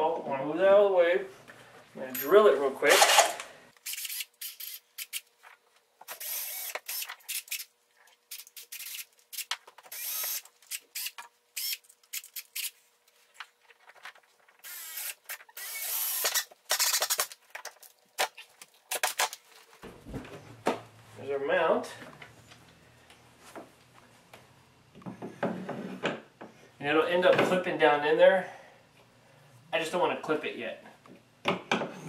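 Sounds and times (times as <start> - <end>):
cordless drill boring through metal: 6.1 - 7.6, 9.9 - 11.8, 14.6 - 17.2.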